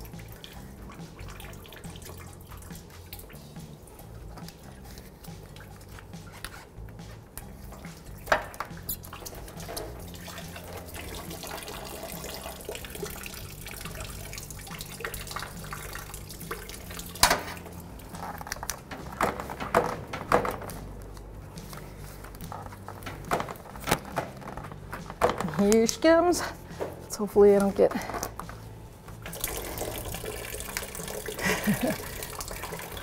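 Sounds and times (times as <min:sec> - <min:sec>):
coolant dripping into bucket: 0:00.0 - 0:06.1, 0:07.6 - 0:20.8, 0:29.2 - 0:33.0.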